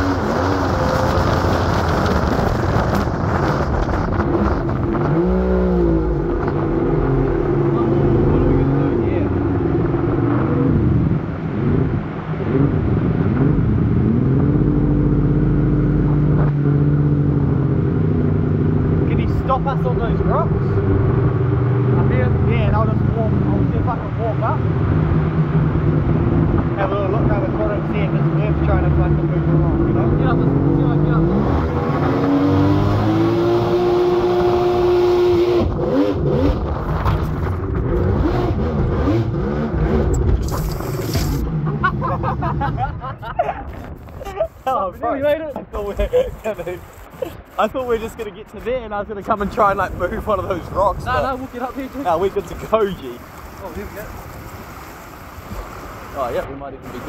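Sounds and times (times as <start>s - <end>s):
boat engine revving: 0.0s - 43.0s.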